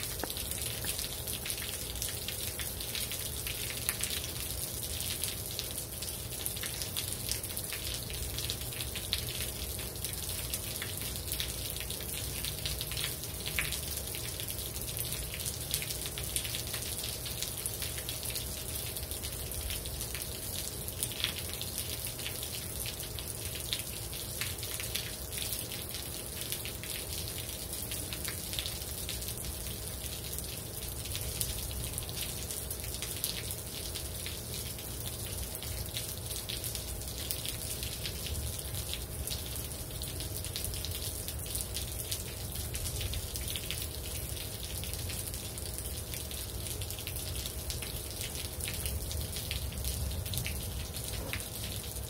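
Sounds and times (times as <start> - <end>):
steady rain: 0.0 - 52.0
water dripping off roof edge: 0.0 - 52.0.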